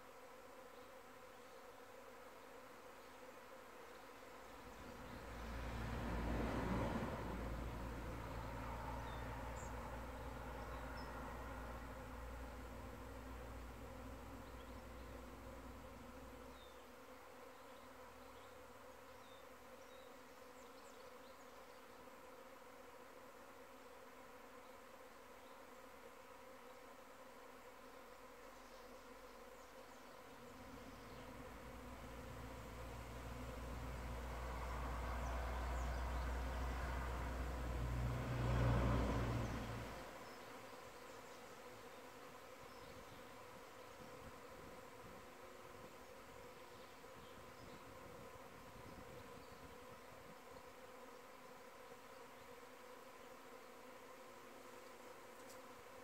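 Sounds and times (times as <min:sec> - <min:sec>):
bees buzzing: 0:00.0 - 0:56.0
passing vehicle rumble: 0:04.8 - 0:15.8, 0:30.7 - 0:40.2.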